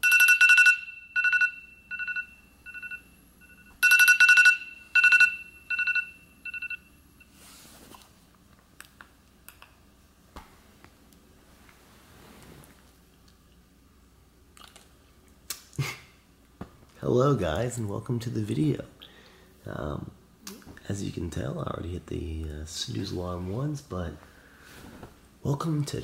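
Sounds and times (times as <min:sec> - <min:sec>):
phone alarm beeping: 0:00.0 - 0:07.3.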